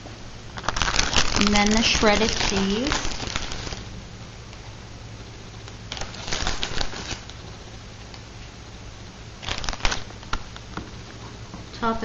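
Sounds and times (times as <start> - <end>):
low steady hum: 0.0 - 12.0
plastic bag crinkling: 0.6 - 3.9, 5.9 - 7.4, 9.4 - 10.5.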